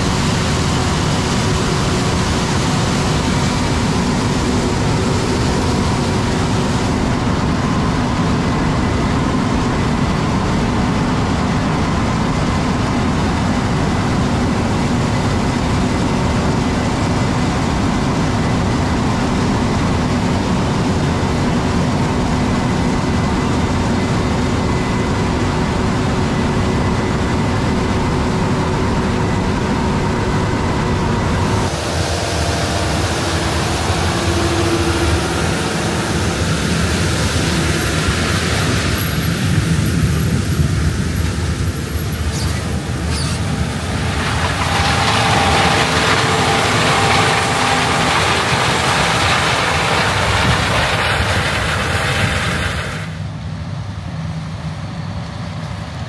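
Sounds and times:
heavy farm machinery drone: 0.0 - 56.0
hiss: 31.5 - 53.2.

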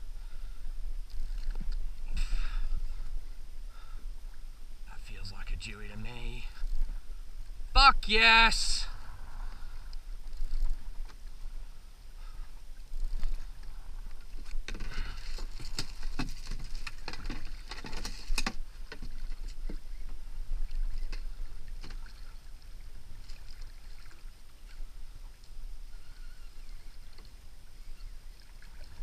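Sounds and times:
water lapping against kayak hull: 8.3 - 29.0
steady low rumble: 8.8 - 14.2
clicks and knocks of fishing gear: 14.4 - 19.8.

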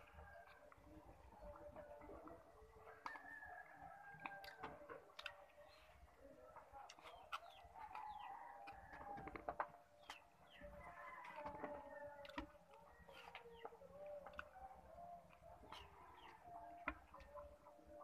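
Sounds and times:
roosters crowing: 2.9 - 4.8, 10.6 - 12.6
hens clucking: 4.2 - 18.0
small birds chirping: 5.2 - 18.0.

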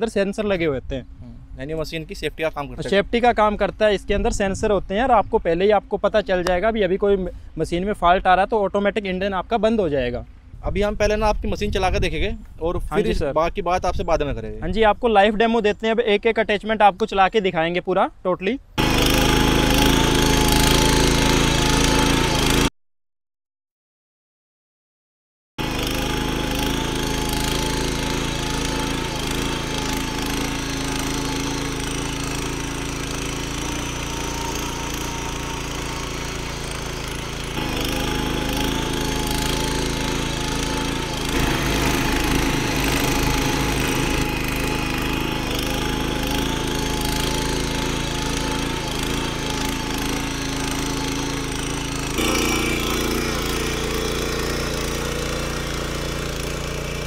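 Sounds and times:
power tiller engine running: 18.8 - 22.7, 25.6 - 57.0
tines churning soil: 18.8 - 22.7, 25.6 - 57.0.

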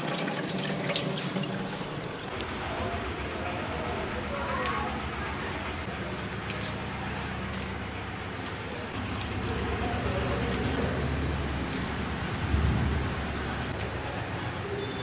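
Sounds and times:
knife slicing chillies: 6.4 - 15.0.

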